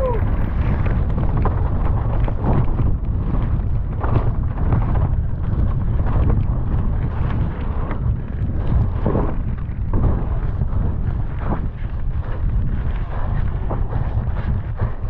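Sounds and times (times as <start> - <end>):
tyres on dirt trail: 0.0 - 15.0
wind buffeting microphone: 0.0 - 15.0
bike knocking and rattling: 0.5 - 15.0.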